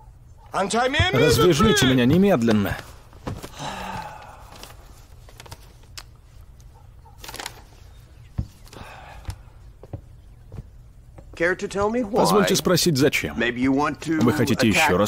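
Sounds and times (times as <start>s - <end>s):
clothing rustling: 2.4s - 11.2s
footsteps walking off: 7.5s - 12.1s.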